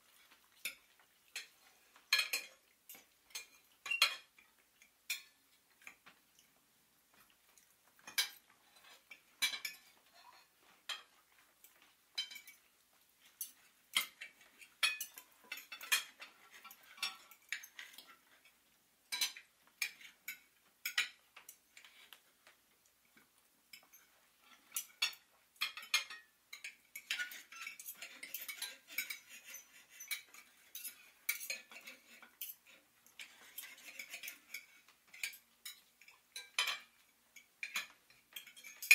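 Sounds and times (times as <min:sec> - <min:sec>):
cutlery and dishes clinking: 0:00.1 - 0:06.5, 0:07.1 - 0:38.9.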